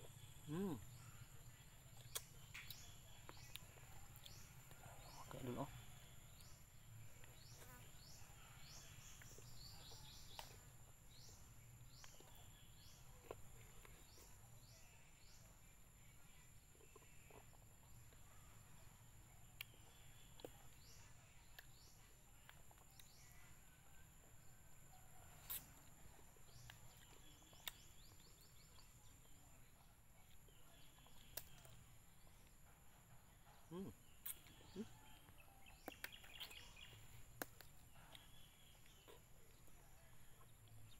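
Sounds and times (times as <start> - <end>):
faint chewing clicks: 25.4 - 29.4.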